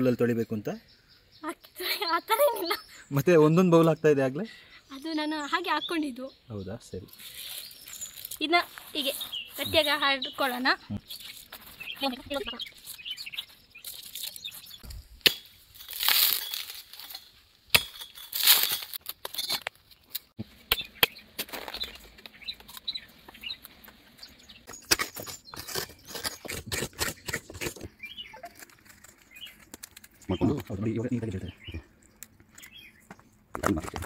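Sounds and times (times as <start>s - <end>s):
rustling and scraping: 7.1s - 15.1s, 15.7s - 20.4s, 21.3s - 30.7s.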